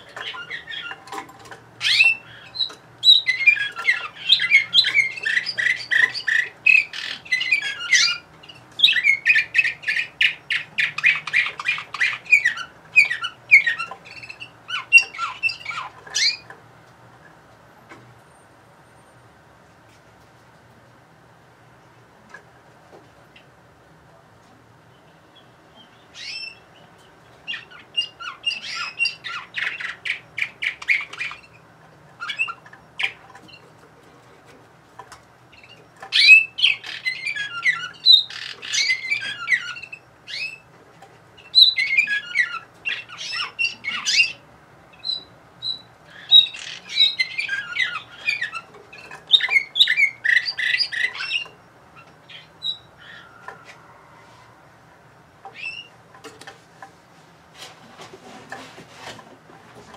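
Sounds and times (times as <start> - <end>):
canary singing trills and warbles: 0.0 - 19.2, 24.7 - 57.0.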